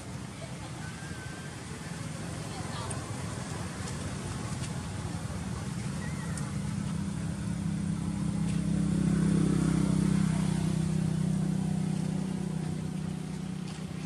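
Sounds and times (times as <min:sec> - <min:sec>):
vehicle engine droning: 0:00.0 - 0:14.0.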